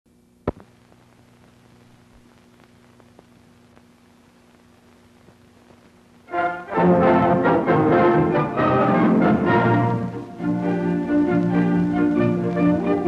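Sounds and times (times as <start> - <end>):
faint crackles: 0.1 - 6.3, 10.0 - 13.0
film soundtrack hiss and hum: 0.1 - 13.0
sharp pop: 0.4 - 0.7
orchestral music with brass: 6.3 - 13.0.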